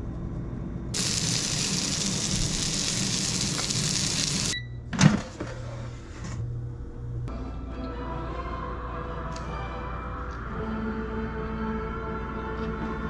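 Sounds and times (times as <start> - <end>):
chicken sizzling in oil: 1.0 - 4.6
air fryer low hum: 1.0 - 5.2.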